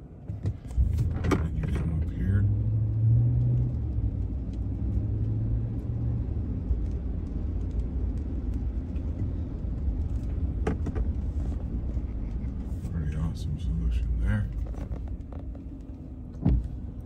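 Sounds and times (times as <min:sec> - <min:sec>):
car engine and tyres rumbling: 0:00.0 - 0:17.0.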